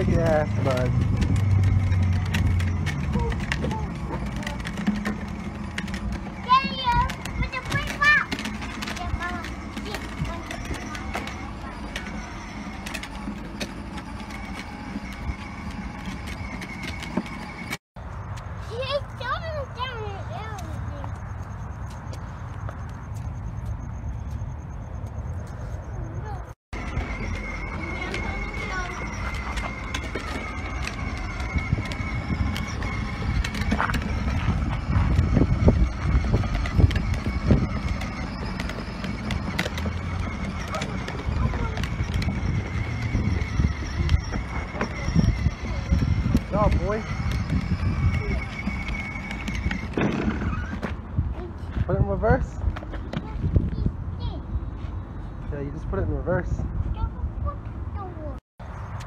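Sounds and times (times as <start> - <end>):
electric toy motor whine: 0.0 - 17.8, 26.8 - 51.1
plastic wheels rolling on asphalt: 0.0 - 54.4.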